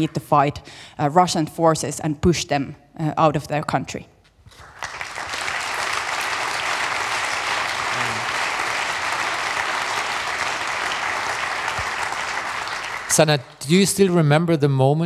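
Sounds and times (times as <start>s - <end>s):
audience applauding: 4.5s - 13.9s.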